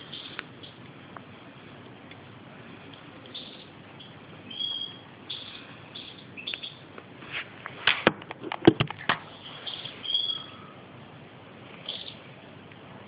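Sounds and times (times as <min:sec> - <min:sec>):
bird twittering chirps: 0:00.0 - 0:00.8, 0:03.3 - 0:06.9, 0:09.6 - 0:10.7, 0:11.8 - 0:12.2.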